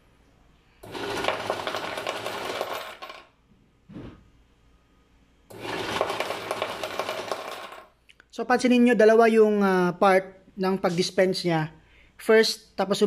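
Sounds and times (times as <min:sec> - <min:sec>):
coins clattering into tray: 0:00.9 - 0:03.3, 0:05.5 - 0:07.9.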